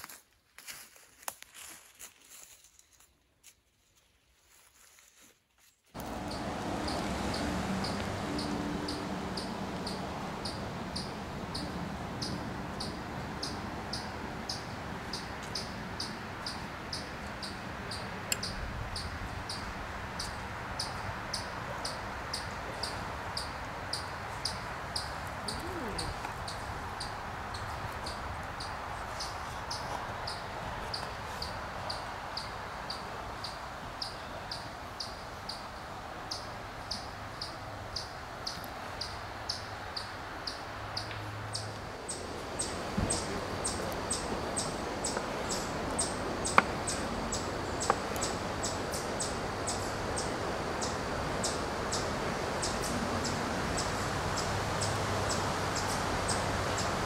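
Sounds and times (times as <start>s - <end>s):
outdoor background hiss: 0.0s - 57.0s
cricket chirping: 6.0s - 57.0s.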